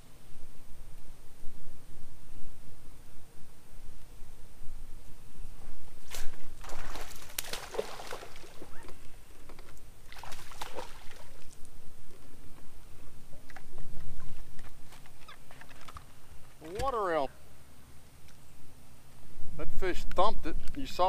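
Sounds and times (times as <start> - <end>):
water sloshing and splashing: 6.2 - 11.6.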